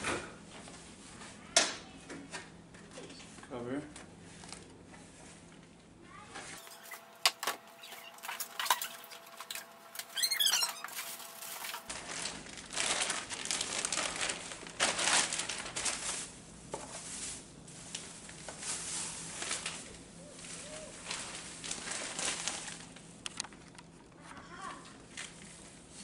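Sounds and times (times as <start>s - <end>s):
plastic bag crinkling: 6.6s - 16.4s, 17.9s - 24.0s.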